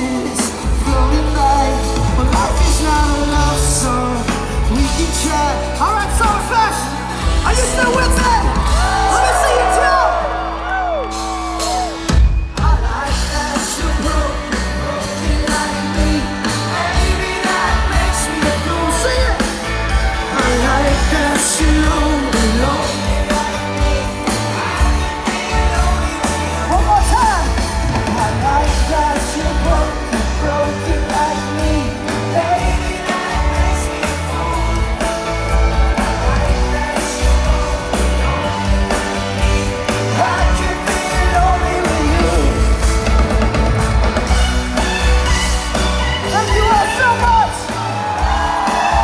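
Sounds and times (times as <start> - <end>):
person singing: 0.0 - 7.6, 12.5 - 43.6
live pop-rock band: 0.0 - 49.0.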